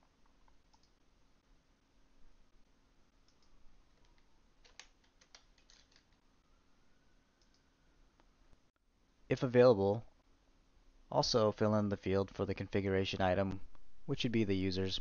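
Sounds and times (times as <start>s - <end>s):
computer mouse clicks: 0.2s - 1.0s, 3.3s - 6.2s, 7.4s - 7.6s
keyboard keystrokes: 3.3s - 6.1s.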